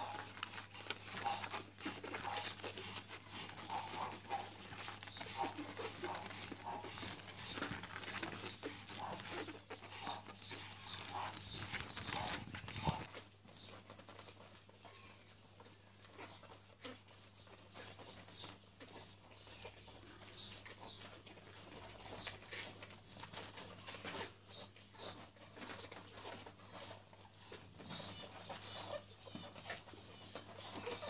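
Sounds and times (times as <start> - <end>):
puppies suckling: 0.0 - 31.0
puppy squeaks: 16.1 - 31.0.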